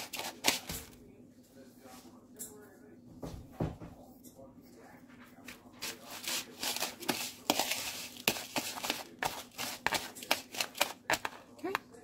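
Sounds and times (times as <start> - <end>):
utensil scraping in a bowl: 0.0 - 1.0, 5.4 - 11.9.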